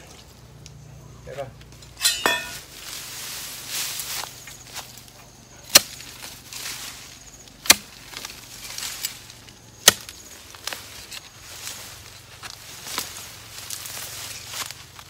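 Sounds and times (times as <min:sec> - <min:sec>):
blade chopping into roots: 0:07.6 - 0:08.4, 0:09.8 - 0:10.8.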